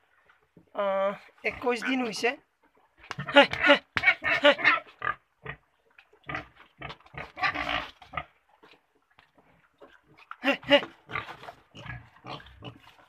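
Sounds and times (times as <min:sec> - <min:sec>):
pigs grunting: 0:06.2 - 0:08.4, 0:10.5 - 0:13.0.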